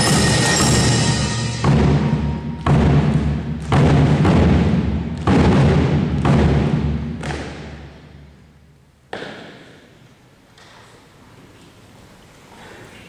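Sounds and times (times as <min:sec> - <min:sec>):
drum corps strikes echoing: 0:00.0 - 0:08.3.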